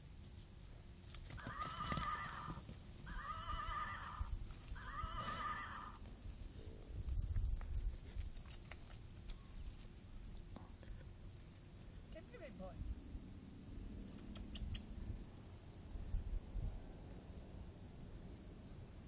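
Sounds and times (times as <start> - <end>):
toy horse electronic neigh: 3.1 - 6.0.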